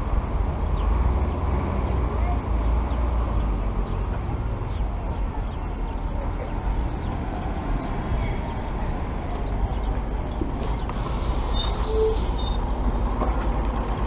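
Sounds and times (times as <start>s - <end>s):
bus diesel engine rumbling: 0.0s - 14.0s
street noise: 0.0s - 14.0s.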